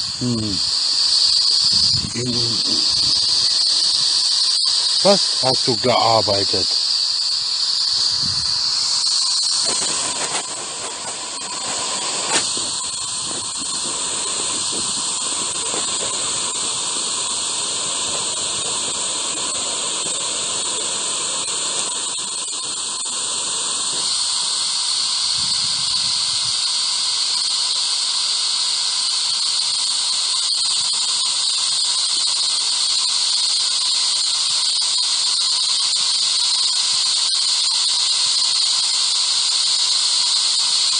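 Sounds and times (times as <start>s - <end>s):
hissing radio static: 0.0s - 7.0s, 7.9s - 24.8s
high squealing band: 0.0s - 20.8s
faint steady tone: 0.0s - 28.6s.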